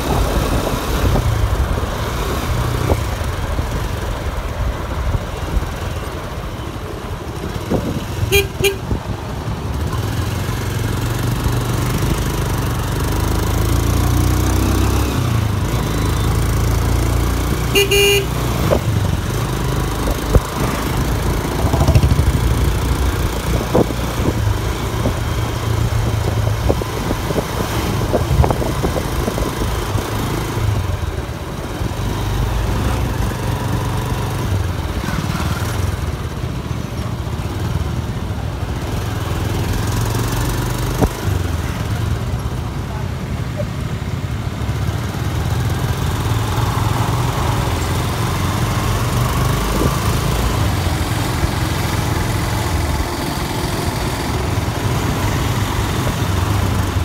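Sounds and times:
horn tooting: 8.2s - 9.0s, 17.6s - 18.5s
motorcycle engine running: 15.3s - 29.4s.

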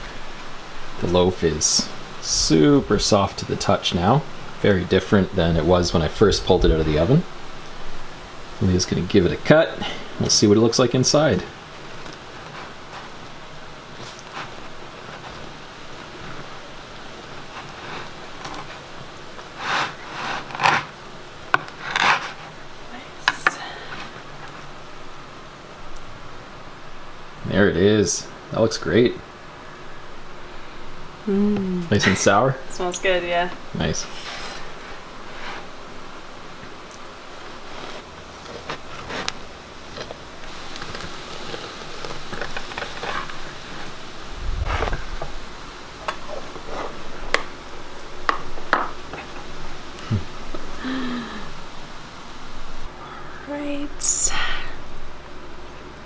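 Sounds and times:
knife sawing through bread crust: 19.6s - 20.9s.

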